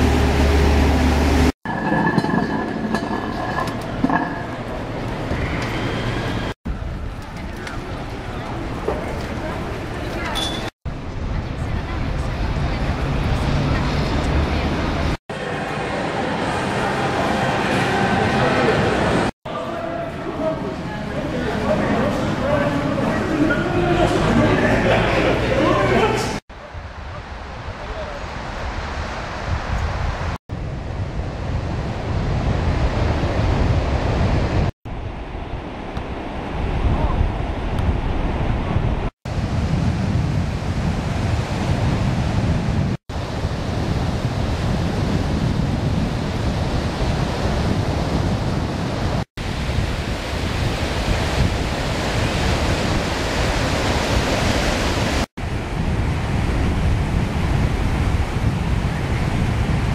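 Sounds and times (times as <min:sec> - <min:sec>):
wind buffeting microphone: 0:26.6 - 0:59.9
surf washing onto beach: 0:39.3 - 0:59.9.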